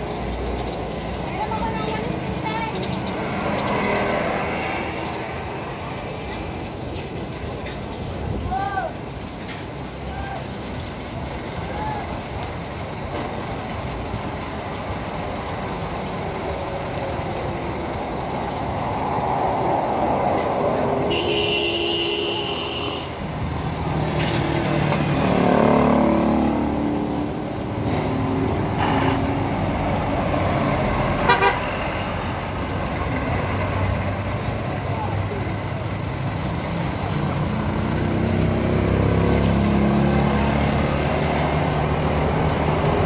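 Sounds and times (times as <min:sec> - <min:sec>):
engine passing close: 0:00.0 - 0:07.6, 0:12.7 - 0:21.3, 0:23.1 - 0:43.0
street traffic: 0:00.0 - 0:43.0
vehicle horn: 0:21.1 - 0:23.2, 0:31.2 - 0:31.7.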